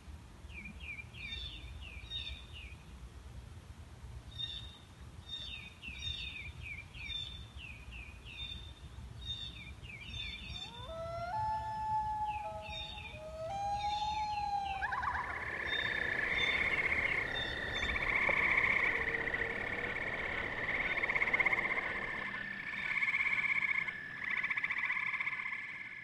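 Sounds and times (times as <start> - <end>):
long wailing call: 10.5 - 24.7
frogs trilling: 10.5 - 26.0.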